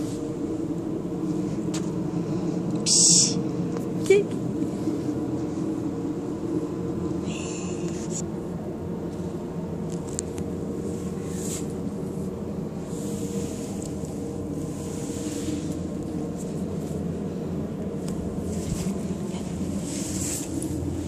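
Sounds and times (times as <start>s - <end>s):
low mechanical hum: 0.0s - 21.0s
faint hissy rustles: 9.1s - 21.0s.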